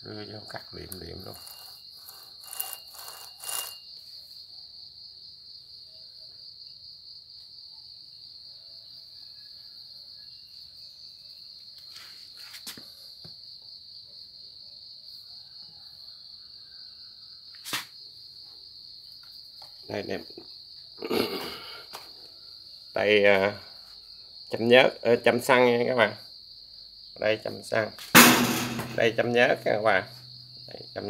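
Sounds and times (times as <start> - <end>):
high-pitched insect trill: 0.0 - 31.0
handling knocks: 28.2 - 29.2.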